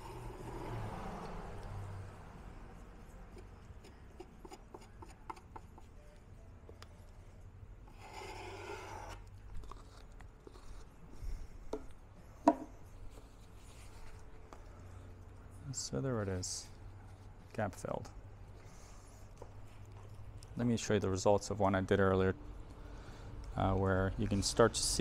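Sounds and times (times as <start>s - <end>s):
putty knife scraping filler: 7.9s - 10.8s.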